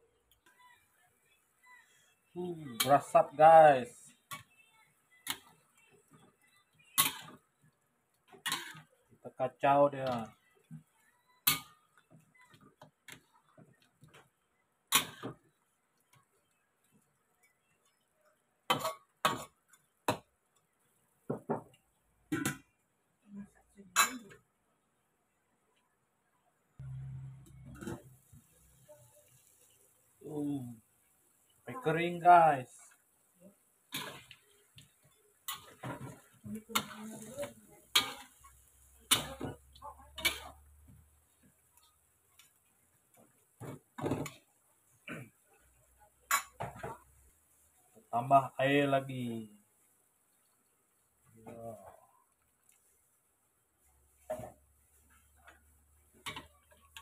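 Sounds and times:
metal spatula scraping a wok: 0:33.9 - 0:34.5, 0:35.4 - 0:40.6.

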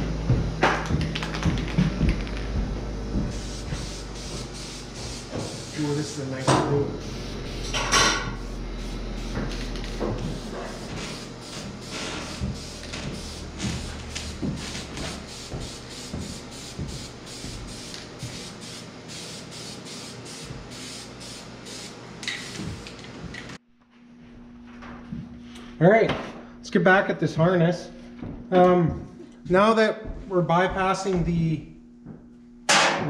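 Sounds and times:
spray can mixing ball rattling: 0:00.9 - 0:02.4
spray can hissing: 0:03.3 - 0:06.3, 0:08.4 - 0:23.0.

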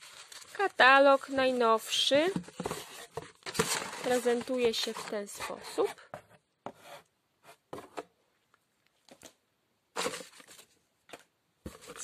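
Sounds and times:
paper and plastic rustling: 0:00.0 - 0:06.0, 0:10.0 - 0:12.0.

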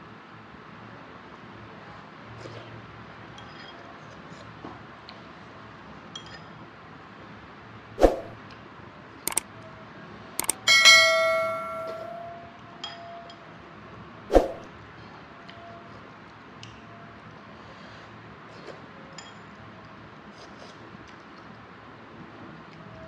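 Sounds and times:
metal spoon clinking ceramic bowl: 0:10.4 - 0:12.2.

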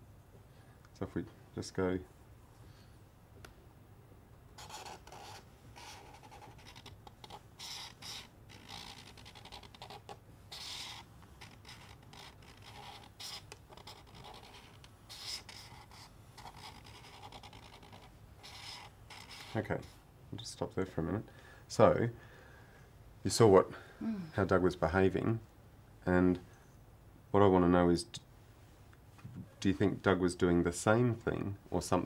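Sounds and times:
pen scratching on paper: 0:04.6 - 0:19.9.

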